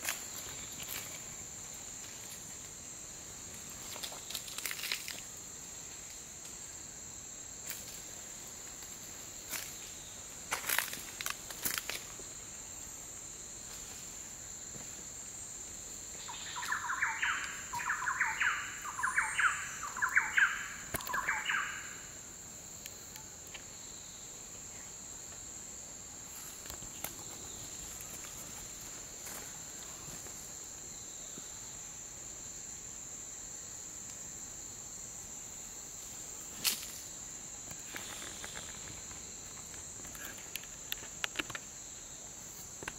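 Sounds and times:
insect chorus drone: 0.0s - 42.9s
loud bird calls: 16.3s - 22.0s.

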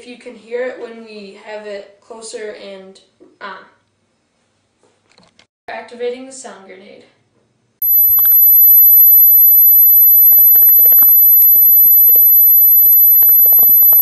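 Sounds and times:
high-pitched steady tone: 7.8s - 14.0s.

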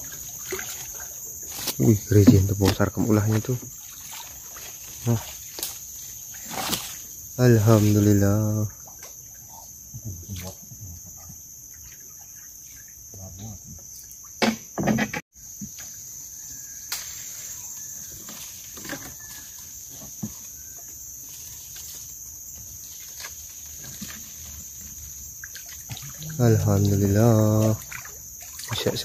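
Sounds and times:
high-pitched insect drone: 0.0s - 29.0s.

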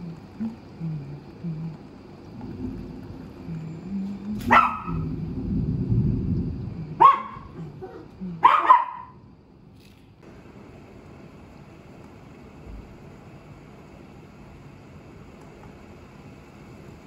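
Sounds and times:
heavy rain hissing: 0.0s - 8.5s, 10.2s - 17.0s
low thunder rumble: 1.1s - 8.5s
small dog barking sharply: 7.0s - 7.5s, 8.4s - 9.2s.

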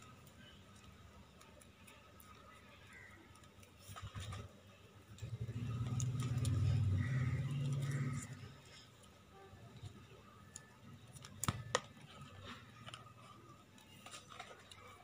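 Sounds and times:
passing vehicle engine hum: 5.2s - 8.5s
plastic strip clicking and rustling: 9.8s - 15.0s.

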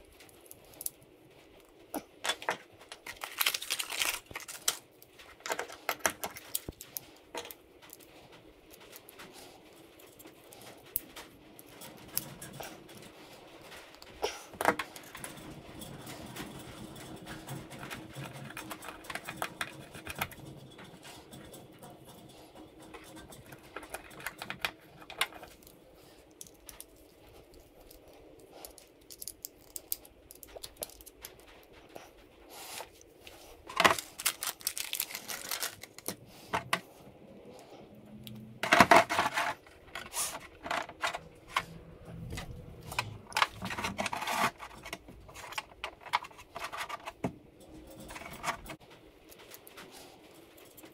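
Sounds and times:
hardware clattering on plastic: 2.0s - 9.1s, 10.1s - 25.7s, 33.6s - 37.0s, 38.3s - 49.6s
small screws and fittings rattling: 14.6s - 31.6s, 38.6s - 49.7s.

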